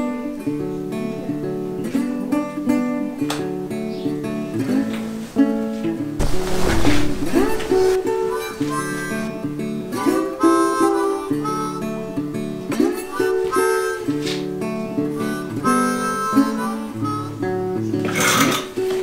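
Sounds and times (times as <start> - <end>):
acoustic guitar: 0.0 - 19.0
harmonica: 7.2 - 18.6.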